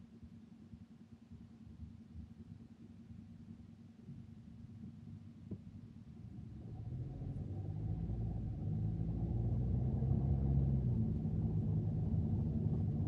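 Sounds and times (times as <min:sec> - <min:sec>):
car engine and road rumble: 0:06.3 - 0:13.0.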